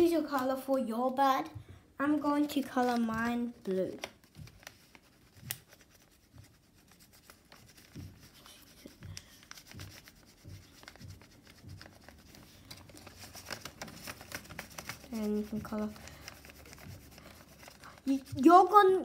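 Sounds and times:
pen scribbling on paper: 0:14.8 - 0:18.4.

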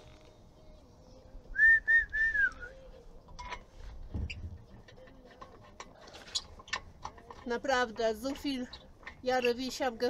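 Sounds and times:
person whistling: 0:01.5 - 0:02.8.

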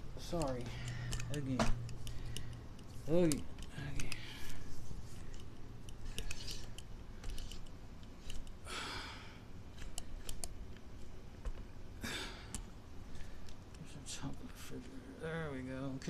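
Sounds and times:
low steady hum: 0:00.0 - 0:16.0
light handling clicks and taps: 0:00.2 - 0:08.6, 0:09.8 - 0:11.7.

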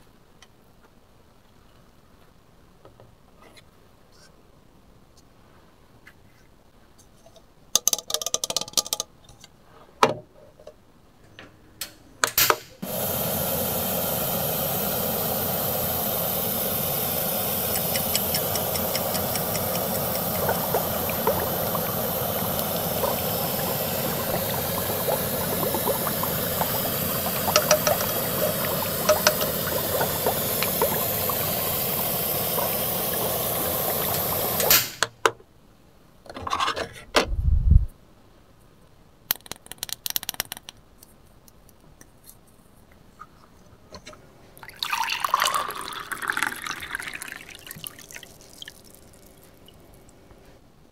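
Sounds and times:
toy boiling water sound effect: 0:12.8 - 0:35.0, 0:44.6 - 0:50.0.

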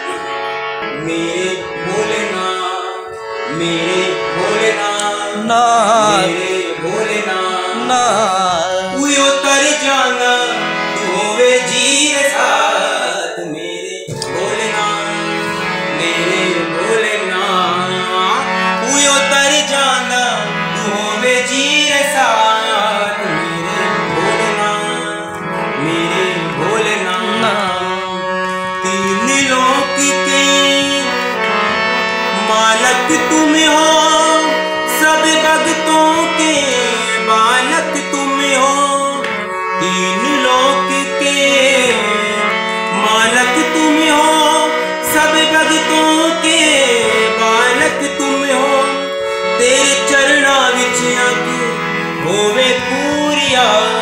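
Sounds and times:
harmonium melody over drone: 0:00.0 - 0:54.0
man singing wordless phrases: 0:00.9 - 0:15.3, 0:15.9 - 0:31.3, 0:32.3 - 0:54.0.

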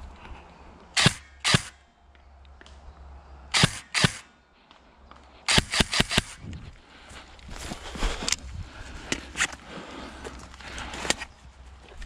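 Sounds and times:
airsoft gun shots: 0:01.0 - 0:01.8, 0:03.6 - 0:04.3, 0:05.5 - 0:06.4.

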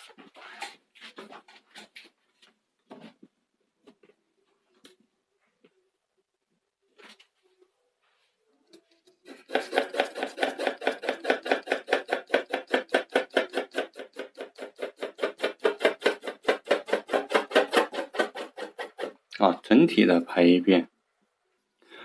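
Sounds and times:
pencil scratching on paper: 0:09.2 - 0:19.2.

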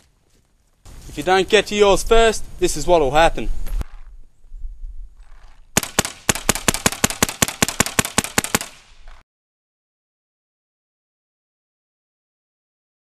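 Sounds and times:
paintball marker firing rapidly: 0:05.8 - 0:09.2.

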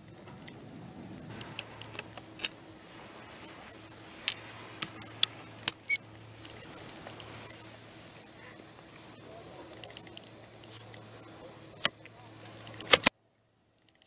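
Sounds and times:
plastic and metal clicks: 0:11.8 - 0:13.1.

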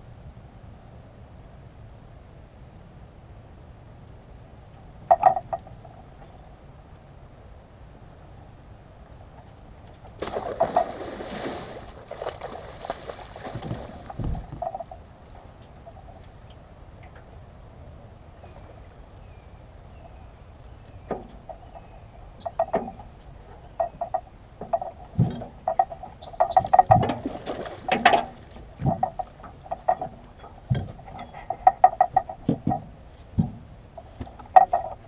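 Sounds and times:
fish splashing: 0:10.2 - 0:15.1
knocks against metal boat: 0:27.9 - 0:33.7.

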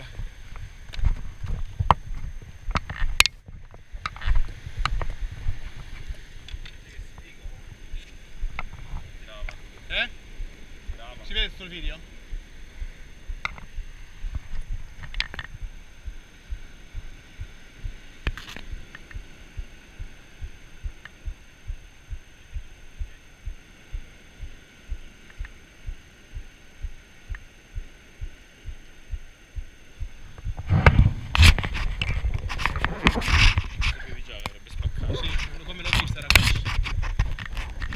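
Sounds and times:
faint steady hiss: 0:00.0 - 0:37.9
handling noise on camera: 0:00.5 - 0:07.4, 0:13.4 - 0:15.7, 0:18.3 - 0:19.3, 0:30.3 - 0:37.9
muffled camera thumps: 0:12.8 - 0:27.4, 0:28.2 - 0:37.9.

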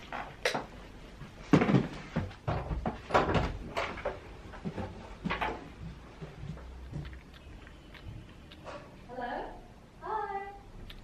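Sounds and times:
bat chewing fruit: 0:05.8 - 0:09.2, 0:10.7 - 0:11.0.

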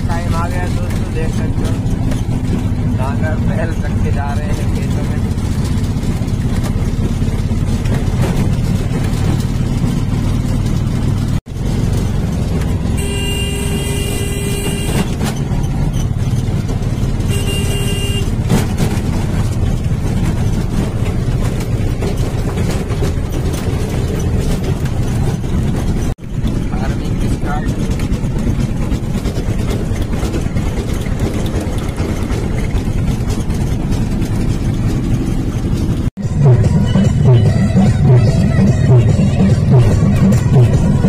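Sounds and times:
vehicle engine running: 0:00.0 - 0:41.0
vehicle horn blasts: 0:12.9 - 0:15.3, 0:17.2 - 0:18.5.

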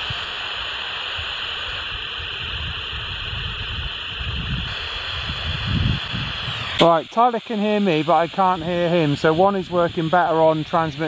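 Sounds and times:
walkie-talkie static hiss: 0:00.0 - 0:11.0
wind rumble on microphone: 0:01.1 - 0:06.9.

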